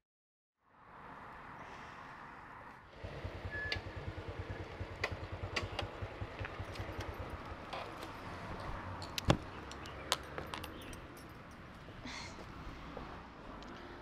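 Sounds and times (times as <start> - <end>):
street background noise: 0.7 - 14.0
motorbike engine idling: 2.9 - 8.4
sharp clicks and knocks: 5.0 - 8.1.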